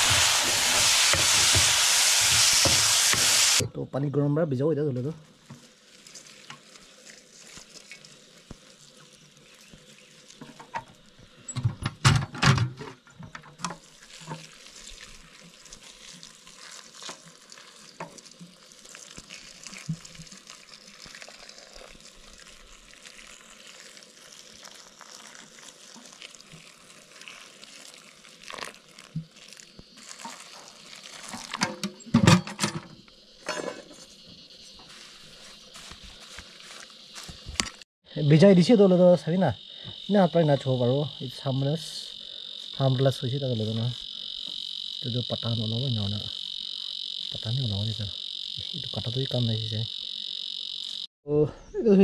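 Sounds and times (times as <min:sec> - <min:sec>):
water pouring into a steel pot: 0:13.7 - 0:31.6.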